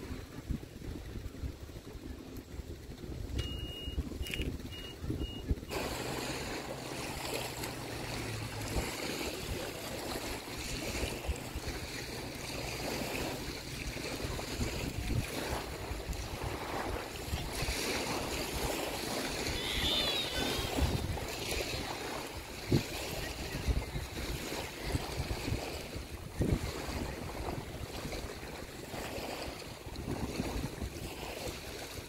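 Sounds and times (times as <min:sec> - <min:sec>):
small waves washing on shore: 0:00.0 - 0:32.0
wind rumbling on microphone: 0:00.0 - 0:32.0
short high chirps: 0:03.4 - 0:05.6, 0:19.5 - 0:20.9.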